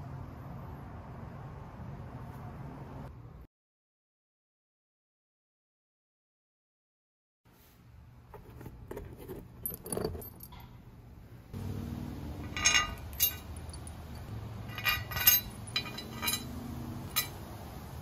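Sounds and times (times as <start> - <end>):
metal bolts clinking on metal plate: 9.6 - 10.8, 12.3 - 17.4.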